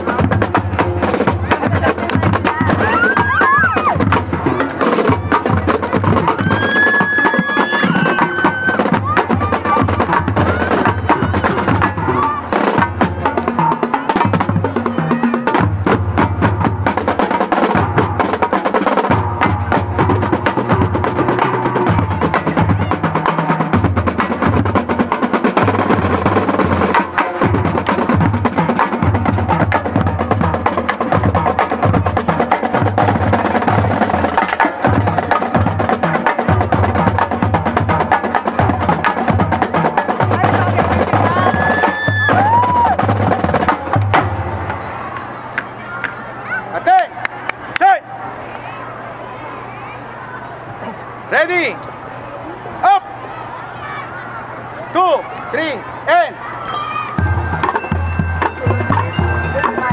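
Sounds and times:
snare drums: 0.0s - 44.8s
tenor drums: 0.0s - 45.7s, 56.7s - 59.9s
bass drum beats: 57.2s - 59.9s.

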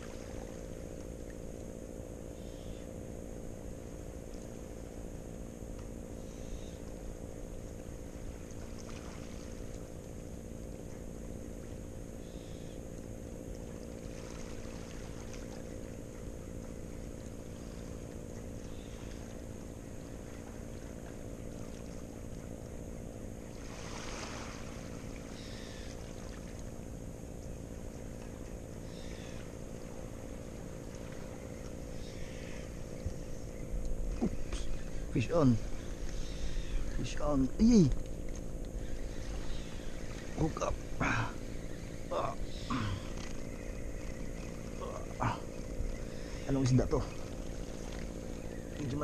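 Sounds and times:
distant boat engine drone: 0.0s - 49.0s.

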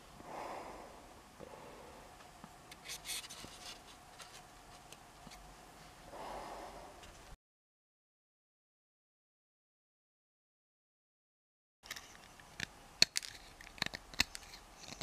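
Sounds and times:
soft breath-like rush: 0.0s - 2.2s, 5.7s - 7.3s
light clicks and scrapes: 2.2s - 5.5s, 11.8s - 15.0s.

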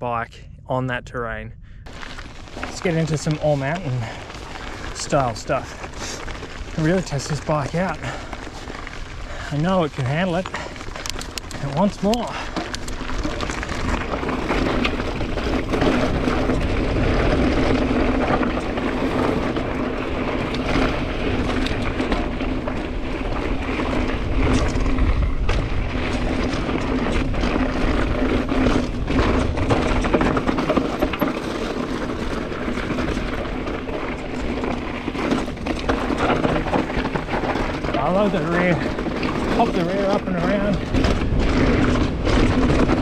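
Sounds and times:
tyres rushing over dirt and rock: 1.8s - 43.0s
bike clacking and knocking: 10.0s - 43.0s.

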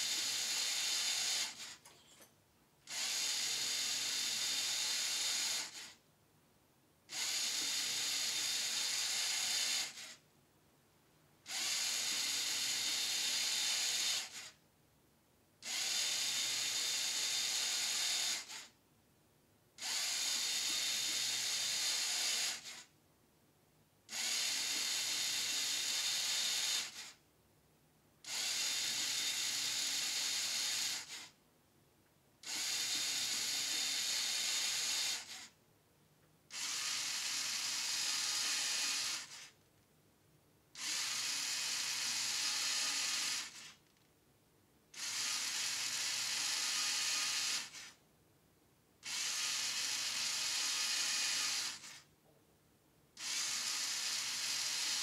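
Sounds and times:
motor whirring: 24.1s - 27.2s, 36.5s - 39.5s, 40.8s - 43.8s, 45.0s - 48.0s, 49.0s - 52.0s, 53.2s - 55.0s.

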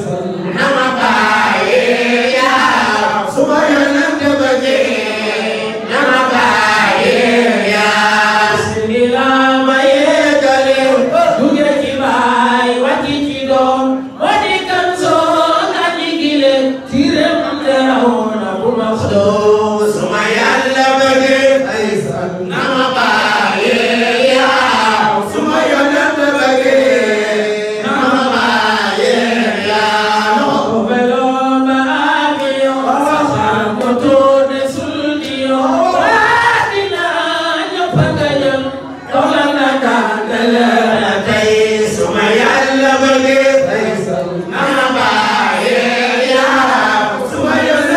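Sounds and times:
men chanting through microphones: 0.0s - 47.9s.

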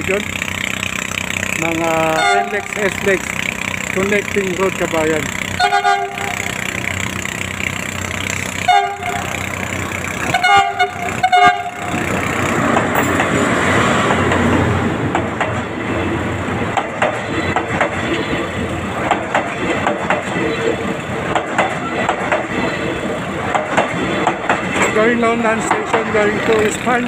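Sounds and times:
clacking train wheels: 0.0s - 27.0s
train rumbling past: 0.0s - 27.0s
locomotive horn blasts: 2.0s - 2.9s, 5.6s - 6.7s, 8.6s - 9.5s, 10.2s - 12.0s.

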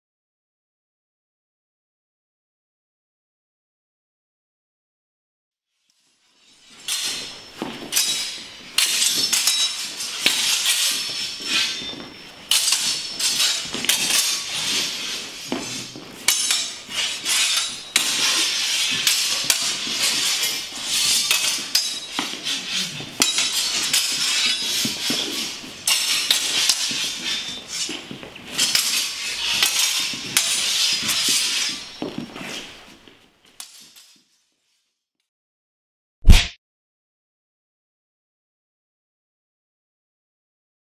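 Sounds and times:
swords clashing: 6.7s - 32.8s.

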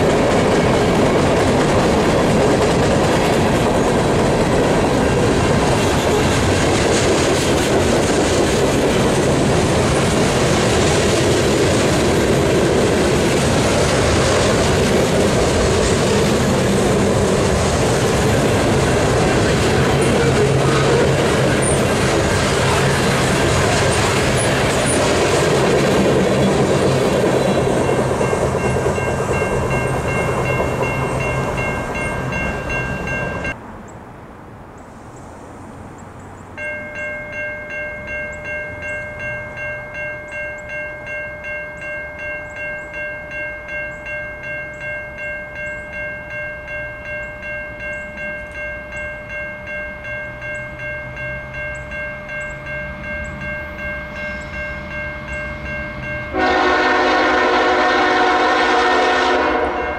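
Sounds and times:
freight train wheels rolling: 0.0s - 33.6s
grade-crossing bell ringing: 0.0s - 33.6s, 36.4s - 59.9s.

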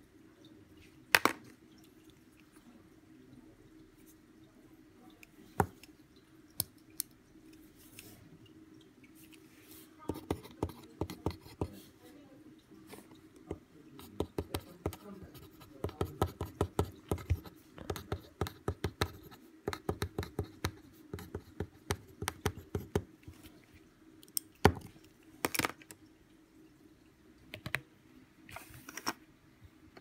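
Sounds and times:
pencil scratching on paper: 10.0s - 11.9s, 14.0s - 23.0s.

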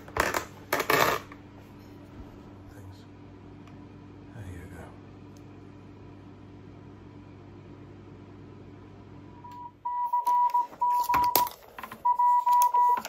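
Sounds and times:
radio transceiver beeps: 9.5s - 13.0s.

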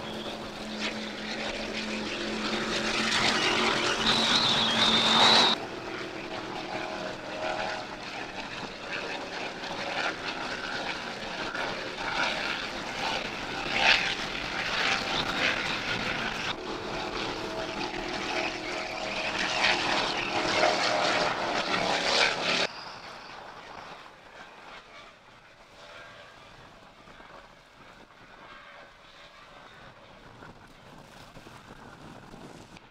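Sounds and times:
powerboat engines droning: 0.0s - 23.1s
wind rumble: 0.0s - 32.9s.

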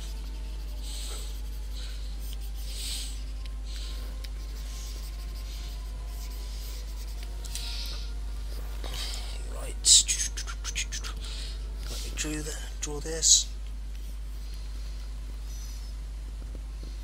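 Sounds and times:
stylus scratching on tablet: 0.0s - 7.8s
steady low hum: 0.0s - 17.0s.

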